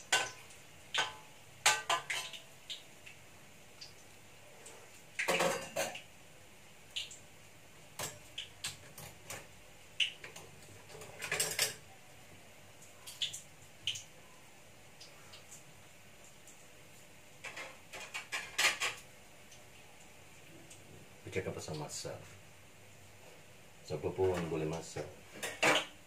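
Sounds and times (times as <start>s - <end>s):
utensils and dishes clinking: 0.1s - 2.4s, 5.2s - 6.0s, 10.3s - 11.9s, 17.4s - 19.0s.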